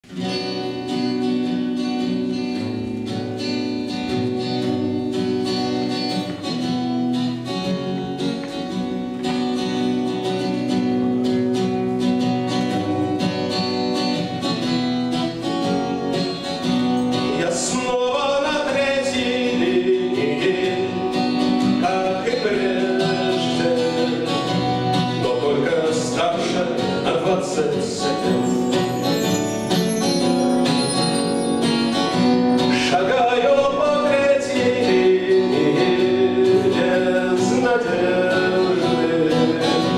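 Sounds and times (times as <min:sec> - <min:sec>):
acoustic guitar strumming: 0:00.0 - 0:39.9
person singing: 0:17.2 - 0:28.7, 0:32.6 - 0:39.9.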